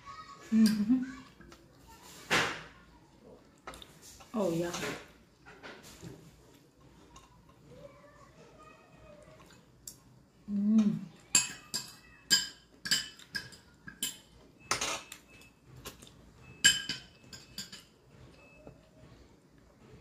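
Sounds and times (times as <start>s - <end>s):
cutlery clinking on a plate: 11.3s - 18.7s.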